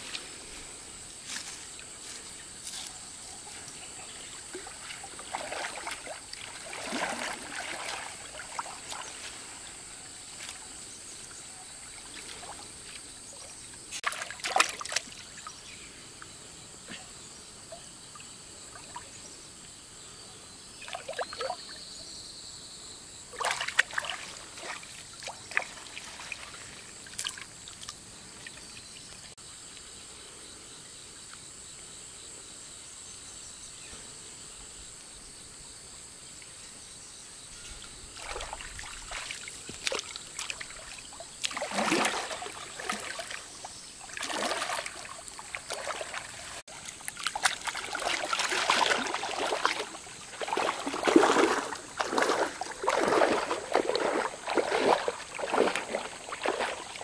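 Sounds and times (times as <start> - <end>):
water splashing and trickling: 0.0 - 15.7, 17.7 - 19.4, 20.8 - 21.9, 23.3 - 29.4, 37.6 - 57.0.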